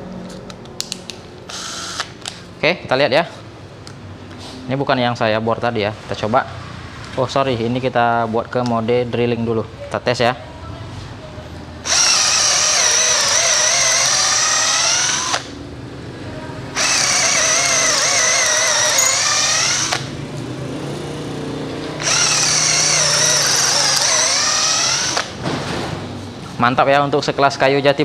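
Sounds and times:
cordless drill whining: 1.5 - 2.4, 11.8 - 15.6, 16.8 - 20.1, 22.0 - 25.4.

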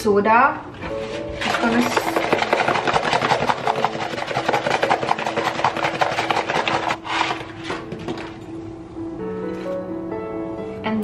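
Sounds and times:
baking soda rattling from box: 1.1 - 8.2.

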